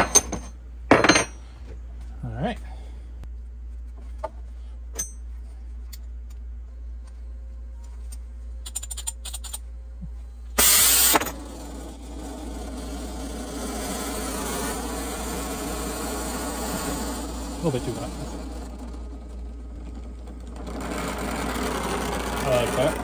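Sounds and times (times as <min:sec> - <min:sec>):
gas flame hissing: 0:10.6 - 0:11.4
gas igniting burst: 0:10.6 - 0:11.4.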